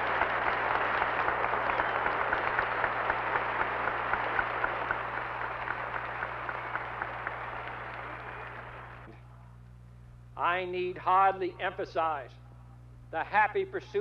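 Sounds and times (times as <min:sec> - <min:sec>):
crowd applauding: 0:00.0 - 0:09.2.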